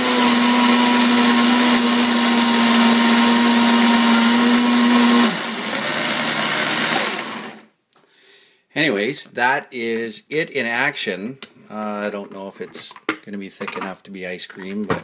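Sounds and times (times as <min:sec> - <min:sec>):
blender churning frozen fruit: 0:00.0 - 0:07.7.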